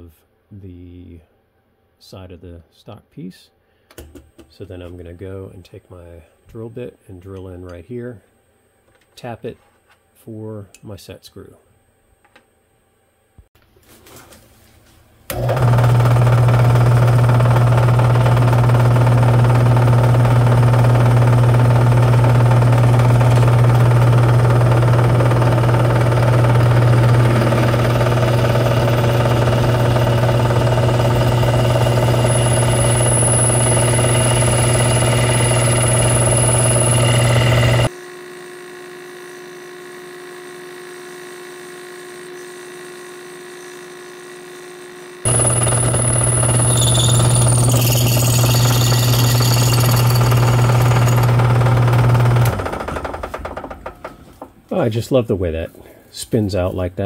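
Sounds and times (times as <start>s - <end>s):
drill press drilling metal: 15.3s - 37.9s, 45.3s - 54.2s.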